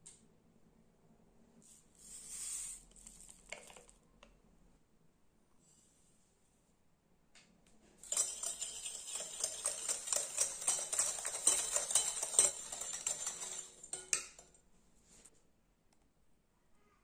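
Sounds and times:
whisk rattling in glass bowl: 8.0 - 14.6.

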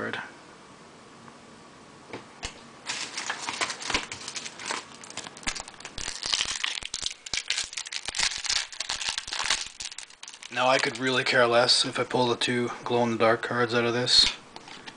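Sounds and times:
foil wrapper crinkling and tearing: 2.8 - 11.2.

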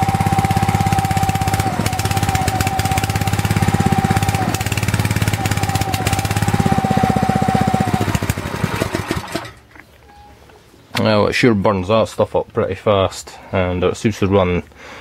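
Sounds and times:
steady whine: 0.0 - 9.5
small petrol engine running: 0.0 - 9.6.

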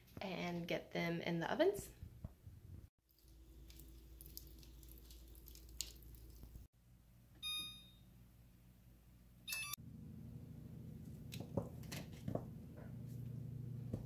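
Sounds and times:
soft squishy dough touches: 3.0 - 6.7.

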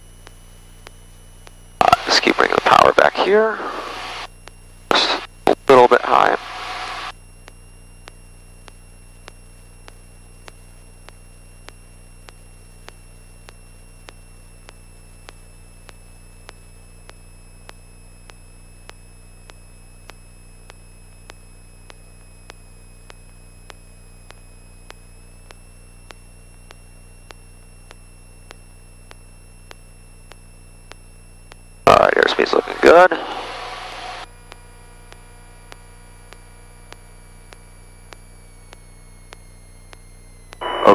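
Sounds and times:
steady electrical hum: 0.0 - 40.9
thin high whine: 1.8 - 7.2, 31.9 - 40.9.

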